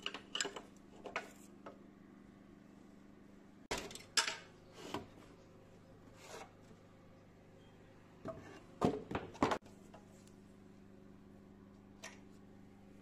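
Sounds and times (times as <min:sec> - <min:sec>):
tools and parts scraping and clicking: 0:00.0 - 0:01.4.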